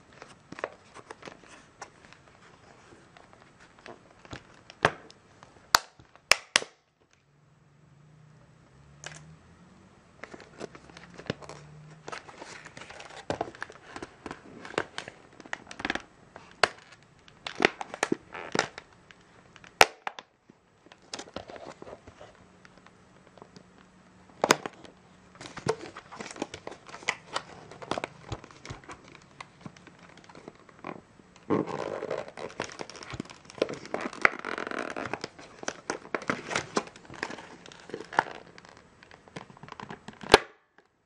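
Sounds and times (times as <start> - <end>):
plastic packaging crinkling: 10.2 - 20.1, 24.4 - 40.4.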